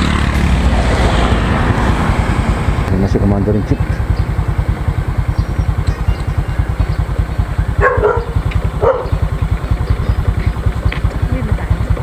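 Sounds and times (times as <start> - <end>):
motorcycle engine idling: 0.0 - 12.0
dog barking: 7.7 - 9.3.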